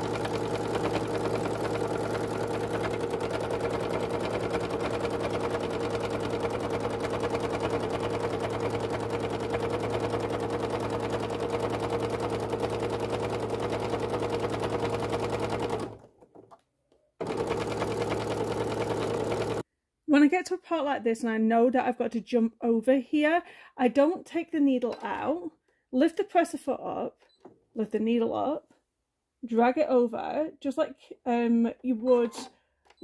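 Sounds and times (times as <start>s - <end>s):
sewing machine stitching: 0.0s - 16.6s, 17.2s - 19.6s, 32.0s - 33.0s.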